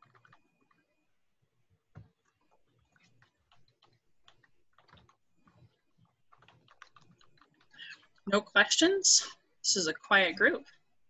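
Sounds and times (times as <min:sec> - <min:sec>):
computer keyboard typing: 0:00.0 - 0:01.0, 0:01.8 - 0:08.4.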